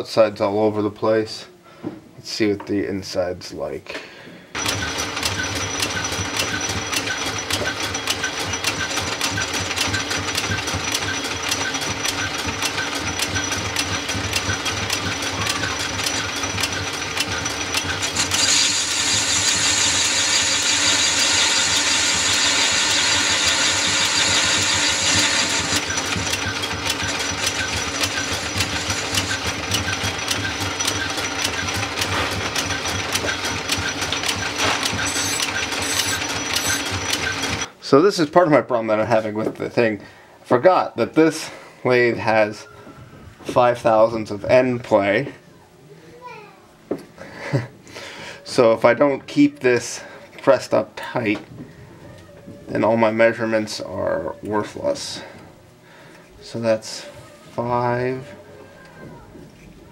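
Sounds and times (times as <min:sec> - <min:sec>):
metal lathe ticking: 0:04.6 - 0:37.7
tool cutting metal scraping hiss: 0:18.0 - 0:25.9, 0:27.1 - 0:29.5, 0:34.6 - 0:36.9.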